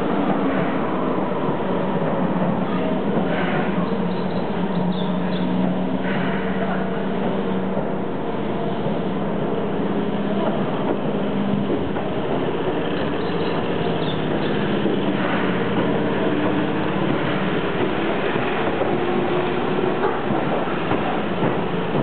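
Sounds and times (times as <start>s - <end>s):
electric train motors humming: 0.0s - 22.0s
train running noise: 0.0s - 22.0s
wheels clicking over rail joints: 10.2s - 22.0s.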